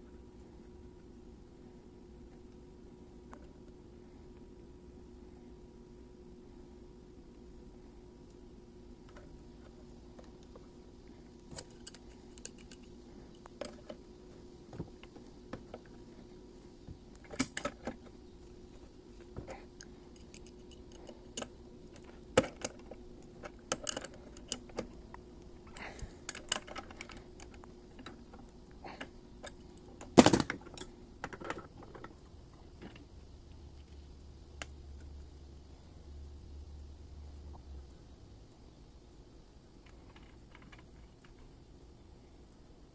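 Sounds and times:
faint steady hum: 0.0s - 42.9s
metallic clicks of pipe fittings: 11.4s - 14.0s, 19.5s - 32.1s.

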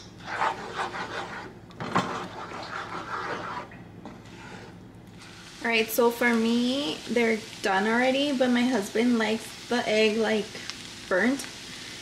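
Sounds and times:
plastic spatula scraping frying pan: 0.2s - 4.8s.

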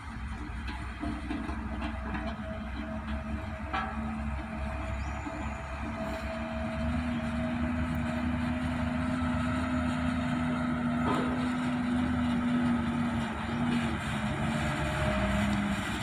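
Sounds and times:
diesel truck engine running: 0.0s - 16.0s.

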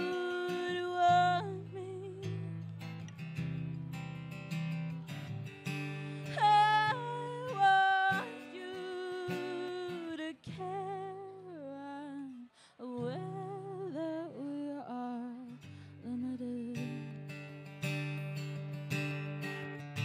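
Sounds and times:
woman singing with vibrato: 0.0s - 2.6s, 6.2s - 17.3s
acoustic guitar strummed chords: 0.0s - 11.4s, 15.6s - 20.0s.

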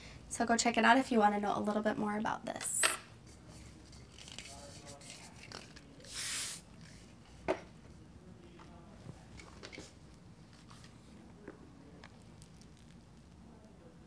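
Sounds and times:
spray can hiss: 6.0s - 6.6s.

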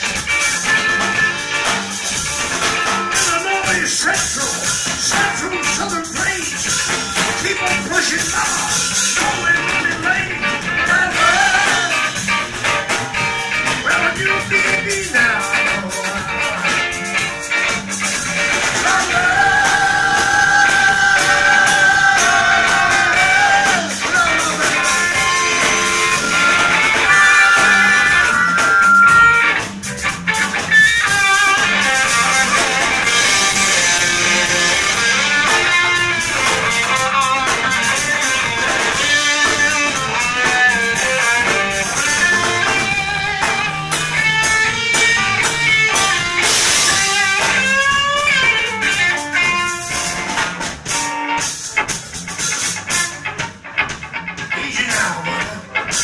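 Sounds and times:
bass guitar: 0.0s - 56.0s
drum kit: 0.0s - 56.0s
electric guitar: 0.0s - 56.0s
harmonica solo: 24.8s - 29.7s.

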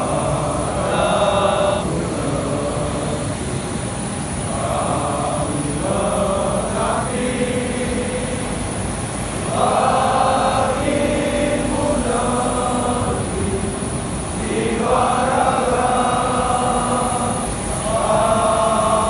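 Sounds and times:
men chanting in unison: 0.0s - 3.7s, 4.4s - 19.0s
steady low rumble: 0.0s - 19.0s.

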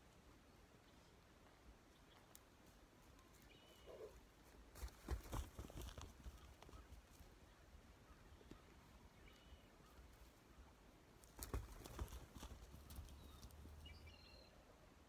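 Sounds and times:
hoofbeats on snow: 2.6s - 7.2s.

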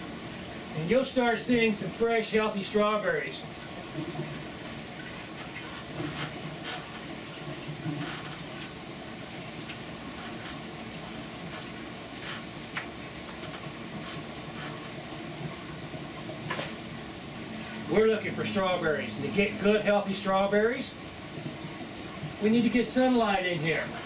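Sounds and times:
water trickling through pipes: 0.0s - 24.0s
leaves snapping and rustling: 12.3s - 13.6s.

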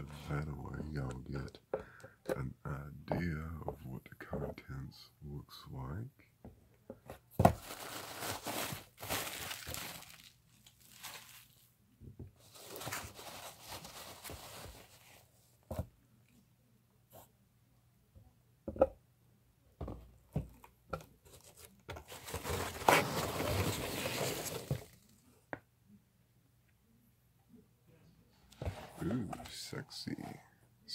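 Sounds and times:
packing material rustling: 7.5s - 11.7s, 12.4s - 15.2s, 21.3s - 25.1s.

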